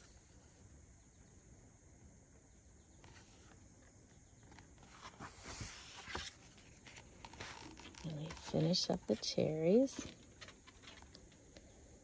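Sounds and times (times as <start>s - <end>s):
paper page rustling: 3.0s - 11.3s.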